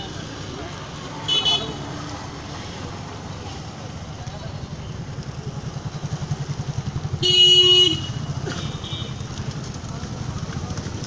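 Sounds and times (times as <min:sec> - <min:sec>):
vehicle horn honk: 0:07.2 - 0:09.2.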